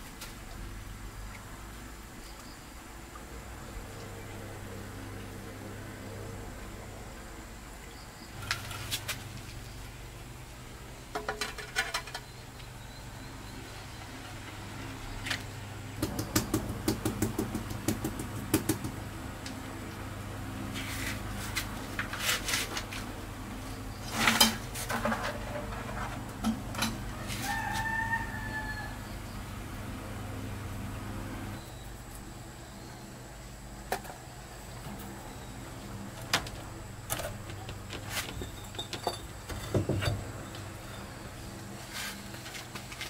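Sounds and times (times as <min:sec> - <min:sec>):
rooster crowing: 0:26.8 - 0:29.5.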